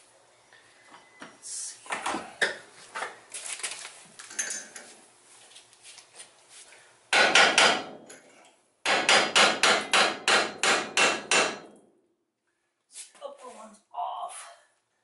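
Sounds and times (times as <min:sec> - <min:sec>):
hammer striking metal: 0:07.1 - 0:08.0, 0:08.8 - 0:11.8.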